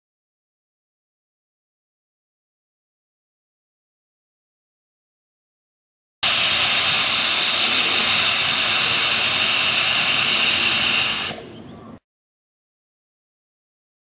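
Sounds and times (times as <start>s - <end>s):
steam locomotive hissing steam: 6.2s - 11.7s.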